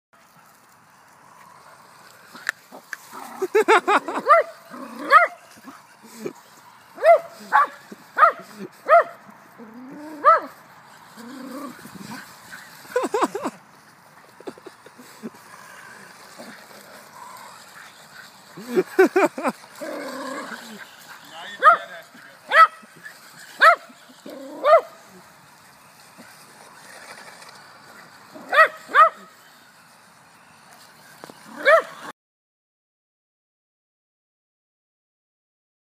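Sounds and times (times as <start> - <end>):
dog yipping: 7.0 - 9.2, 10.2 - 10.5, 22.5 - 25.0, 28.4 - 29.3, 31.5 - 32.1.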